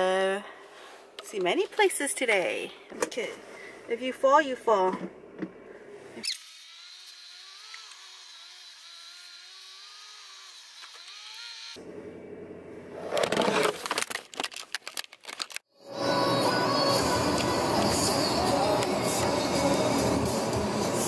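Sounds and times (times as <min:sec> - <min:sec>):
knocks and scrapes: 0:13.0 - 0:15.4.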